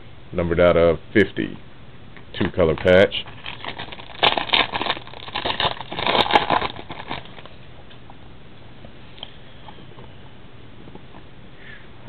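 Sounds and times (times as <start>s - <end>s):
card pack crinkling and rustling: 2.4s - 7.6s.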